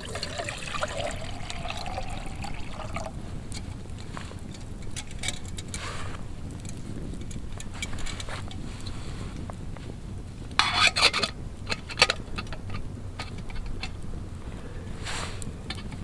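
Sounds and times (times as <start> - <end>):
water pouring into metal cup: 0.0 - 3.8
campfire crackling: 0.0 - 16.0.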